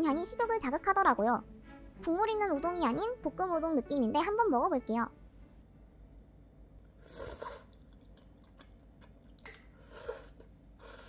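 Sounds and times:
mouth sounds eating noodles: 7.0 - 11.0.

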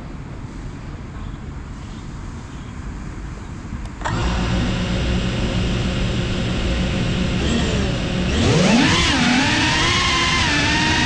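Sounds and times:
drone motors whining: 4.0 - 11.0.

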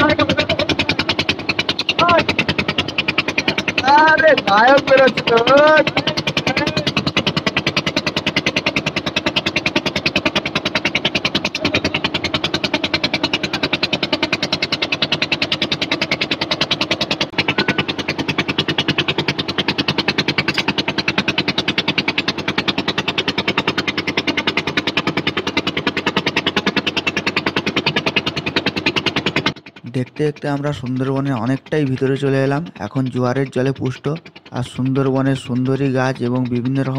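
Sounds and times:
motorboat engine chugging: 0.0 - 36.9.

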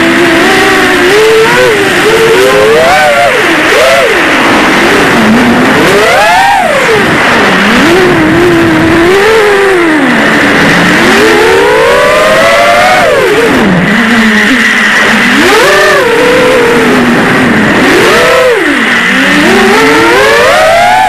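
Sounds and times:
drone motors whining: 0.0 - 21.0.

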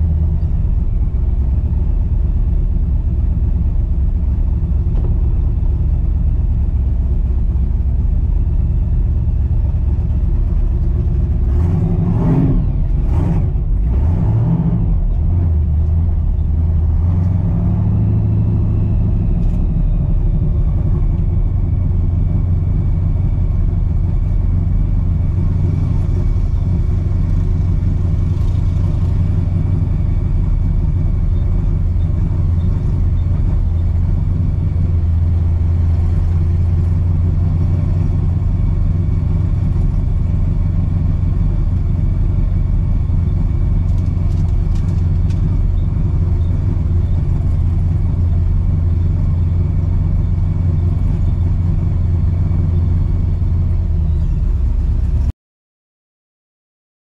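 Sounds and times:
car engine rumbling: 0.0 - 55.3.

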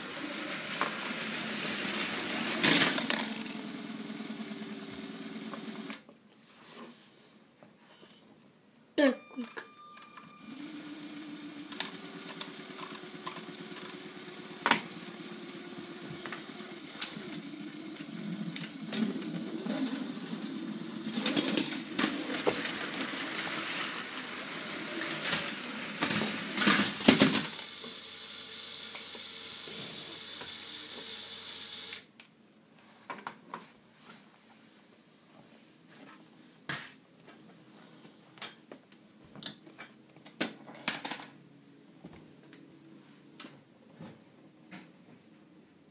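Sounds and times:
toy train motor humming: 0.0 - 6.0, 10.4 - 32.1
wheels rattling on plastic track: 0.0 - 6.0, 11.6 - 28.0.

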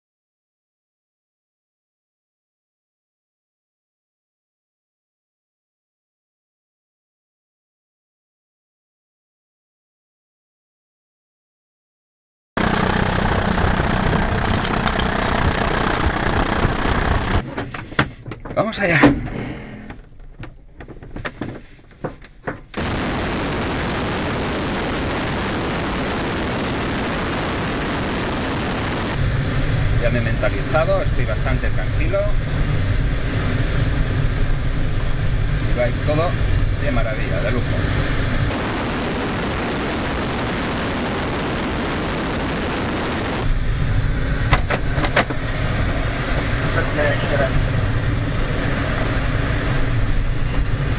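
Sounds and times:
airplane engine drone: 12.6 - 18.2, 22.8 - 50.9
loud wind rushing against camera: 22.8 - 50.9
wind rushing: 37.7 - 50.9.

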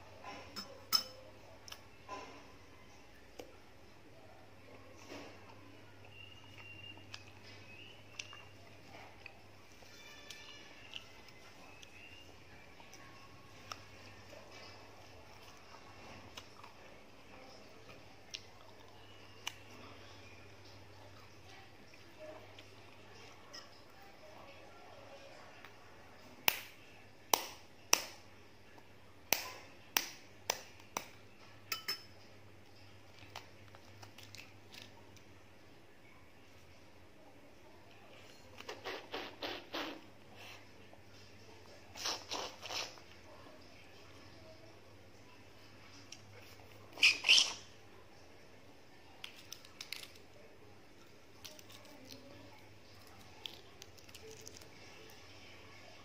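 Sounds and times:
metal spoon tapping eggshell: 0.6 - 1.2, 31.7 - 32.1
eggshell crackling: 49.2 - 55.2.

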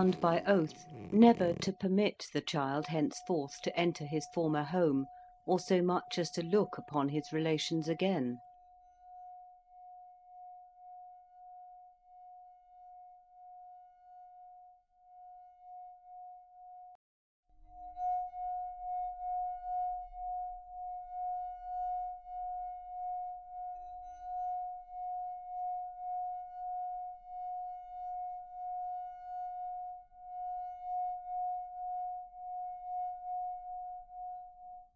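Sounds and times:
sustained ringing tone: 17.7 - 34.9.

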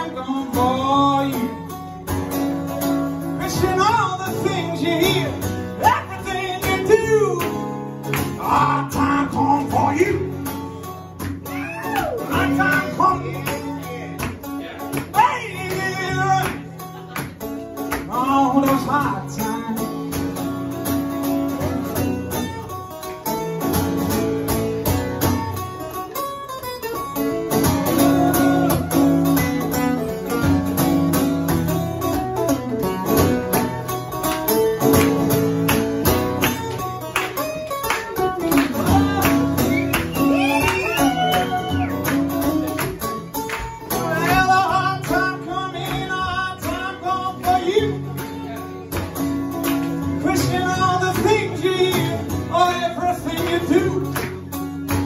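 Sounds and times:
man singing: 0.0 - 2.0, 3.3 - 10.7, 11.8 - 16.8, 17.9 - 20.4, 37.7 - 41.8, 43.9 - 48.8, 50.0 - 54.5
acoustic guitar: 0.0 - 55.0.

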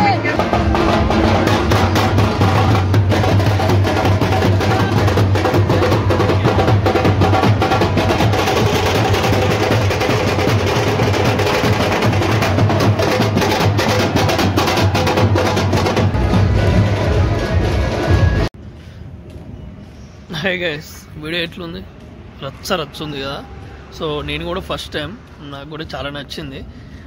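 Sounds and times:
fast dense drumming: 0.0 - 18.5.

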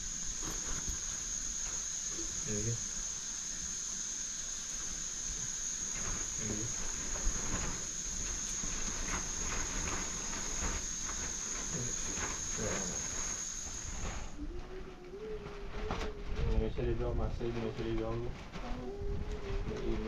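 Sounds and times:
crickets trilling: 0.0 - 20.0.

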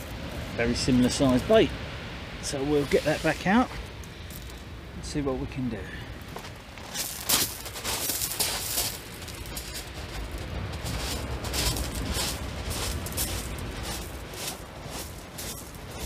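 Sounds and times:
surf on shingle beach: 0.0 - 16.0
wind buffeting microphone: 6.2 - 16.0.

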